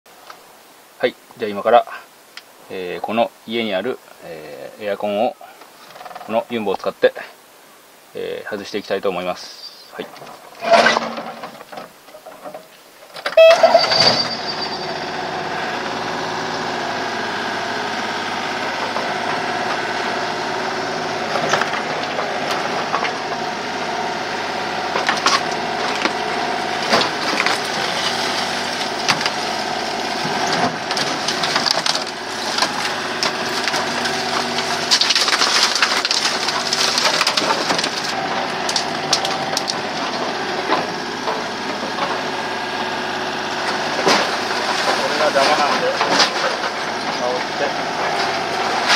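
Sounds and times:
debris crashing down: 0:10.1 - 0:12.6, 0:13.2 - 0:48.9
excavator engine running: 0:13.3 - 0:48.9
wood cracking and splintering: 0:15.0 - 0:48.9.

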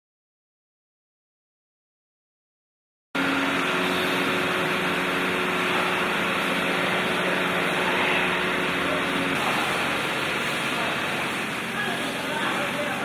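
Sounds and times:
low multi-tone hum: 0:03.2 - 0:13.0.

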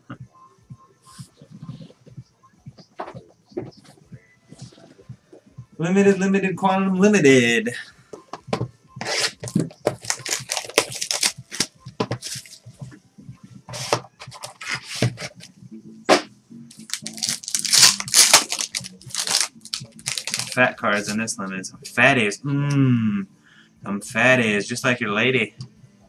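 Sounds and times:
plastic wrapping tearing and crackling: 0:09.2 - 0:12.5, 0:16.7 - 0:21.1
wrapping snapping: 0:10.0 - 0:12.5, 0:16.7 - 0:21.2.

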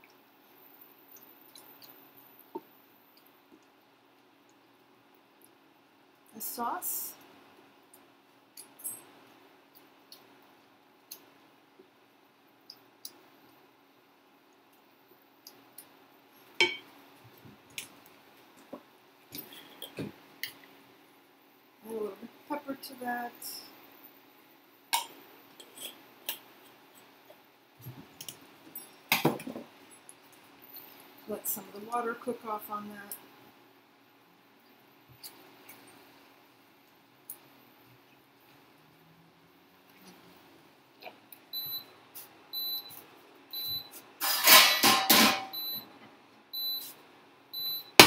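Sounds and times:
cooktop beeping: 0:16.6 - 0:16.9, 0:42.6 - 0:45.9
cookware clattering and scraping: 0:44.2 - 0:45.6.

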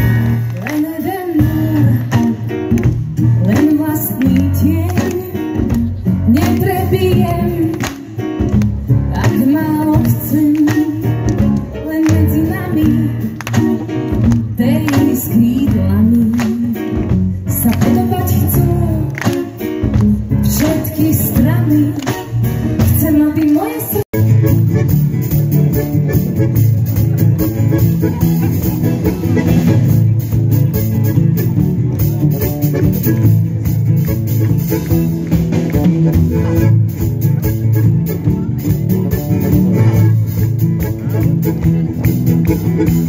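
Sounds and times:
live band music: 0:00.0 - 0:43.0
woman singing: 0:00.7 - 0:02.4, 0:03.4 - 0:05.4, 0:06.3 - 0:07.8, 0:09.1 - 0:13.3, 0:14.6 - 0:16.9, 0:17.5 - 0:19.2, 0:20.4 - 0:22.2, 0:22.8 - 0:24.1.

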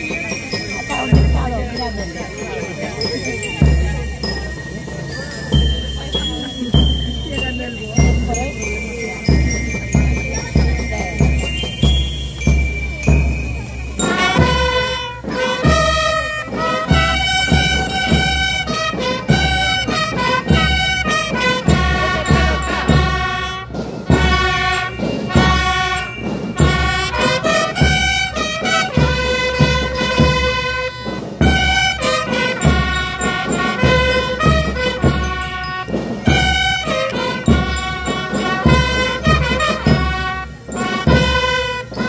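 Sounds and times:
drums beating: 0:00.0 - 0:42.0
bugles playing held notes: 0:09.5 - 0:42.0.

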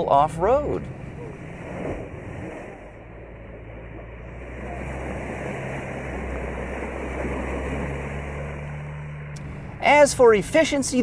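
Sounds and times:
low engine hum: 0:00.0 - 0:11.0
water rushing and splashing: 0:00.0 - 0:11.0.

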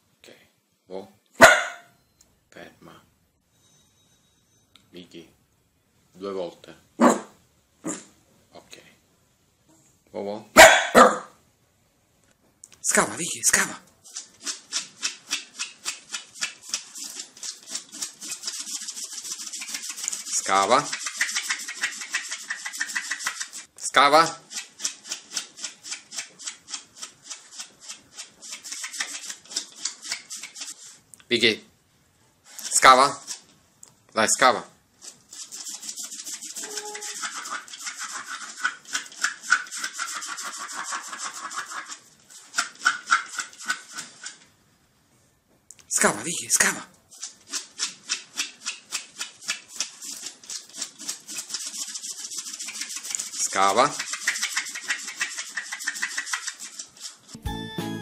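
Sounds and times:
dog claws scratching doormat: 0:14.1 - 0:23.7, 0:35.0 - 0:44.4, 0:47.1 - 0:57.4
dog claws scratching a doormat: 0:47.1 - 0:57.3.

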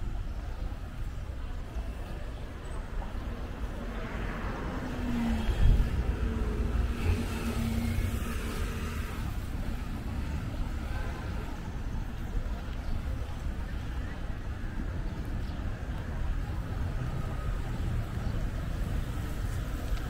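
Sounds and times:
low street rumble: 0:00.0 - 0:20.0
car driving past: 0:04.2 - 0:09.5.

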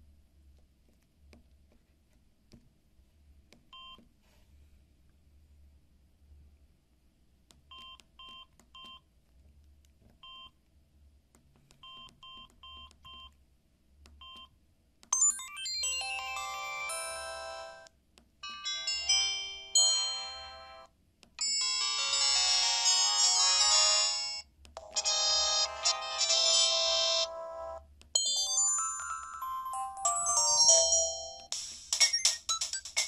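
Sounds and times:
phone keypad beeps: 0:03.7 - 0:04.0, 0:07.7 - 0:09.0, 0:10.2 - 0:10.6, 0:11.8 - 0:13.4, 0:14.2 - 0:14.5, 0:29.3 - 0:33.0
phone message alert tones: 0:24.8 - 0:33.0.

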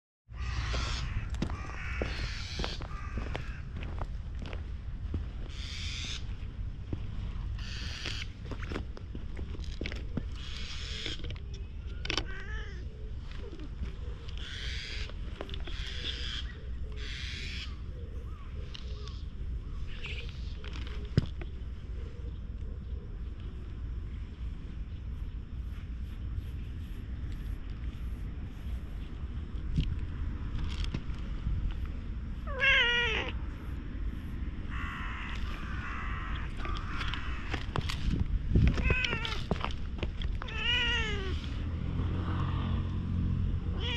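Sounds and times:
low wind rumble on microphone: 0:00.3 - 0:43.9
cat rolling on asphalt rustles: 0:00.7 - 0:16.4, 0:23.3 - 0:43.9
cat meowing: 0:12.2 - 0:12.9, 0:32.5 - 0:33.4, 0:38.8 - 0:39.5, 0:40.4 - 0:41.5.

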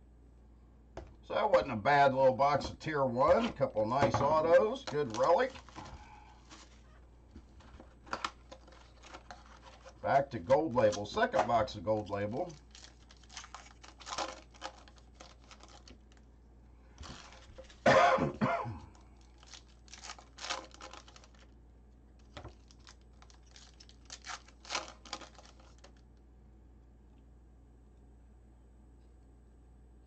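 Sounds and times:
foil wrapper tearing: 0:04.8 - 0:07.0, 0:07.6 - 0:10.0, 0:11.8 - 0:16.3, 0:17.0 - 0:17.9, 0:18.8 - 0:21.6, 0:22.2 - 0:26.0
person coughing: 0:17.8 - 0:18.9.

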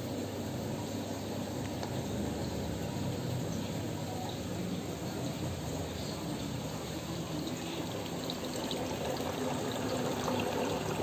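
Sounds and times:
water pouring and bubbling: 0:06.5 - 0:11.0.

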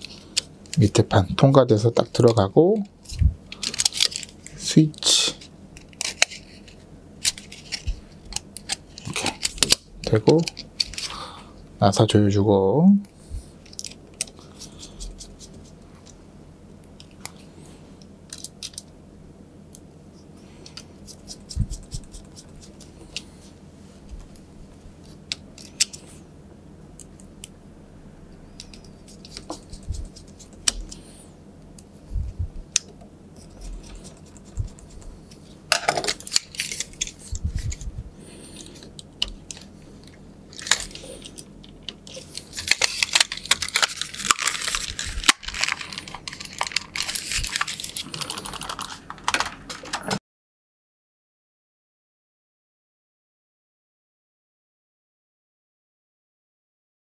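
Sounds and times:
plastic parts rattling: 0:42.0 - 0:50.2.

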